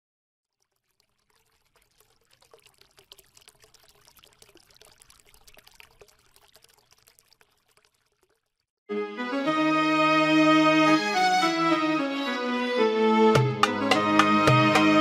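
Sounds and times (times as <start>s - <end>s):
water trickling and bubbling: 0.4s - 8.8s.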